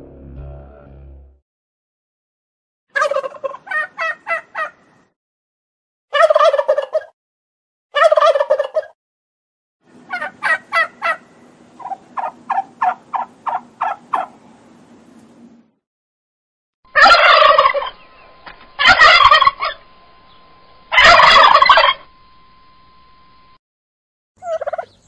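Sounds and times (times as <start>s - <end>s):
turkey gobbling: 3.0s - 4.8s, 6.1s - 7.1s, 8.0s - 9.0s, 10.1s - 14.4s, 16.9s - 19.8s, 20.9s - 22.1s, 24.4s - 25.0s.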